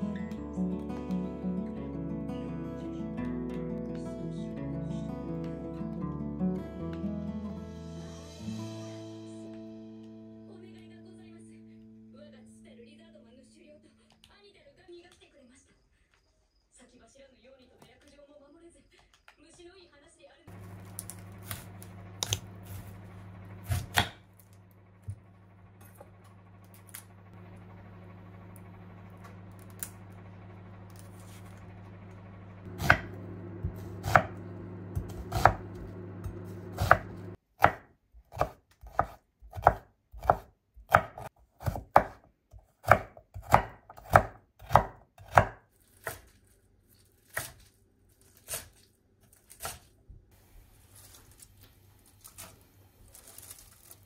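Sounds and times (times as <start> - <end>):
steady low hum: 20.5 - 37.4
knife cutting on wooden board: 23.6 - 24.2, 32.7 - 34.4, 35.0 - 42.2.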